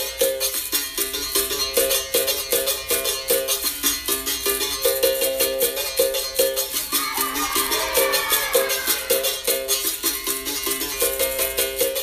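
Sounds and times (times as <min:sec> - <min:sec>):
steady percussion: 0:00.0 - 0:12.0.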